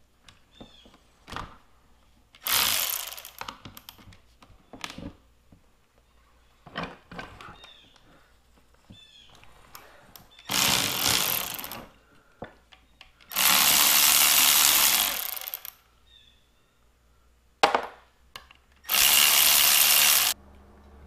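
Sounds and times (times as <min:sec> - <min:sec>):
impact driver running in bursts: 0:02.4 - 0:03.4, 0:10.5 - 0:11.9, 0:13.3 - 0:15.7, 0:18.9 - 0:20.4.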